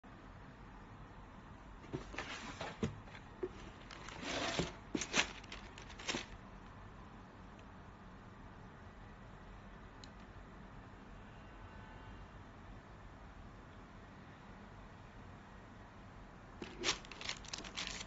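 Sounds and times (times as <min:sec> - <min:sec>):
tissue paper rustling: 0:01.9 - 0:06.4, 0:16.6 - 0:18.0.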